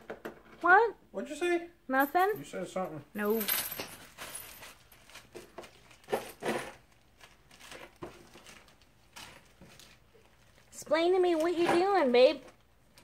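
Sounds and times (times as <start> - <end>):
plastic bag crinkling: 4.0 - 10.8.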